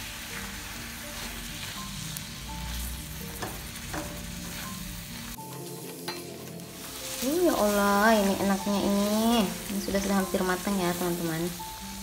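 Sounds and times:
food sizzling in a wok: 0:00.0 - 0:12.0.

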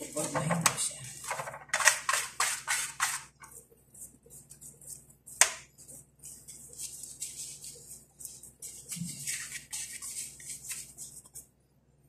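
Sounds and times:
hands slapping dough: 0:05.3 - 0:05.7.

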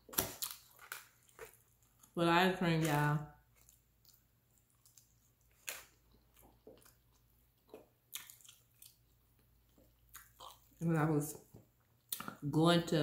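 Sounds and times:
chewing food: 0:00.1 - 0:02.2, 0:02.8 - 0:12.4
wet mouth clicks and smacks: 0:07.7 - 0:09.0, 0:12.0 - 0:12.4.

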